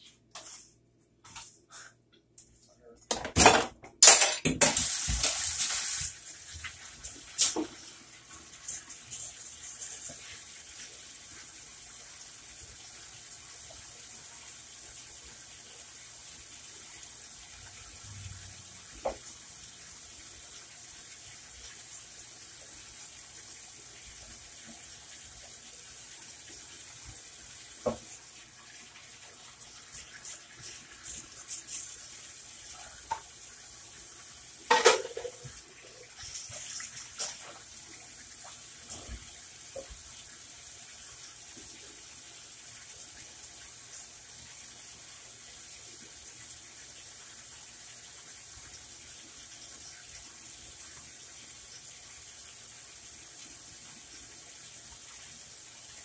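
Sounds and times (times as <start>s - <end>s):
pots and utensils clinking: 3.0s - 5.6s, 34.6s - 35.6s.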